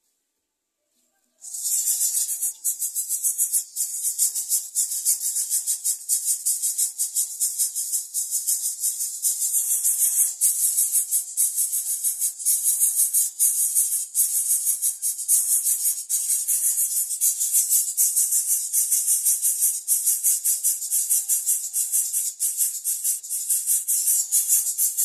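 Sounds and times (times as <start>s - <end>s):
nestlings begging rasp: 1.4s - 25.0s.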